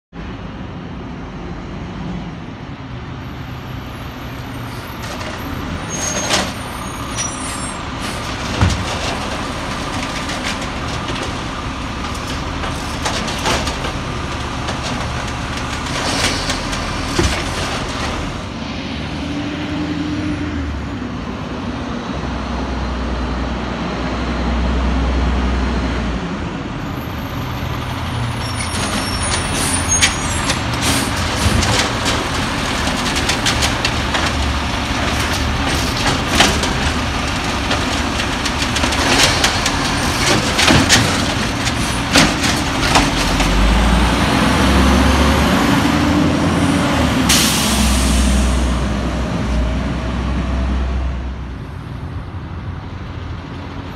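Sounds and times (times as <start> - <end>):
diesel engine running: 4.4 - 19.2, 26.2 - 53.9
carts knocking against truck: 8.0 - 18.4, 28.6 - 44.8
air brakes hissing: 47.3 - 48.7.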